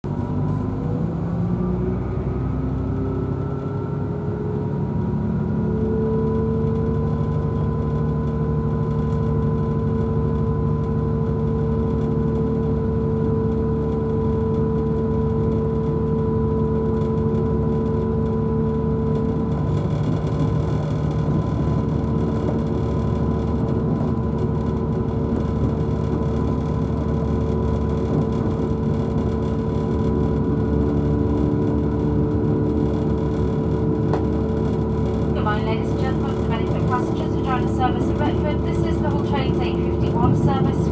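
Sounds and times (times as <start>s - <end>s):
train diesel engine whine: 0.1s - 40.9s.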